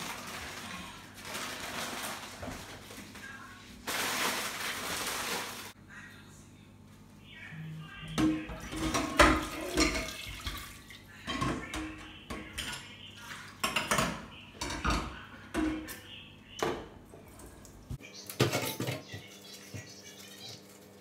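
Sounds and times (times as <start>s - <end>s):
dishes clanking in metal sink: 8.1s - 16.0s, 18.3s - 19.8s.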